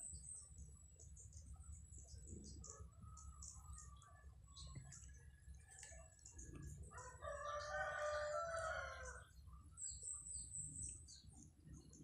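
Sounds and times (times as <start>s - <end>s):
rooster crowing: 6.9s - 9.2s.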